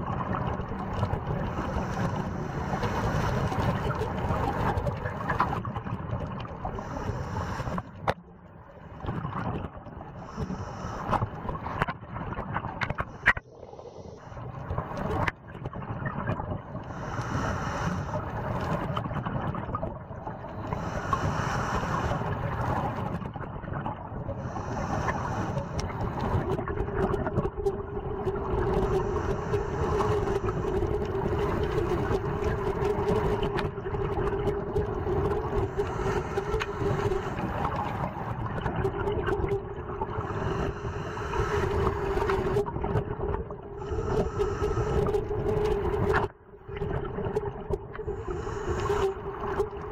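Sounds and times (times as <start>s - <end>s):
diver breathing through regulator: 1.5s - 3.9s, 6.8s - 8.0s, 10.2s - 11.3s, 16.8s - 18.8s, 20.6s - 22.8s, 24.4s - 26.5s, 28.7s - 32.3s, 35.5s - 38.1s, 40.2s - 42.7s, 43.8s - 46.1s, 48.0s - 49.7s.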